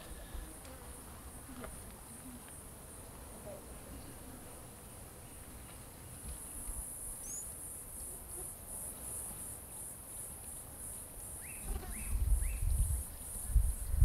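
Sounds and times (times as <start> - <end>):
high-pitched insect buzz: 11.3 - 14.0.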